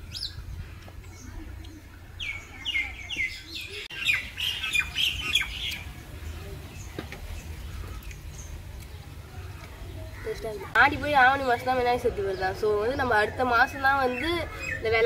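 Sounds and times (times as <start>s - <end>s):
bird calling: 0.0s - 6.0s.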